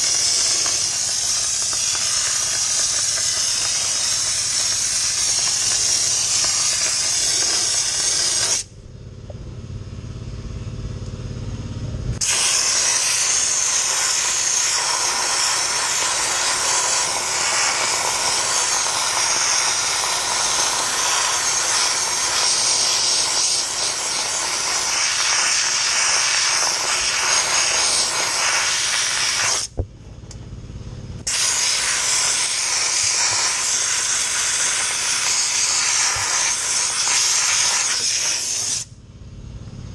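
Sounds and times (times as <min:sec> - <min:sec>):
dry ice blasting hiss: 0:00.0 - 0:08.7, 0:12.2 - 0:29.7, 0:31.3 - 0:38.9
low rumble: 0:08.6 - 0:12.2, 0:29.7 - 0:31.3, 0:38.9 - 0:39.9.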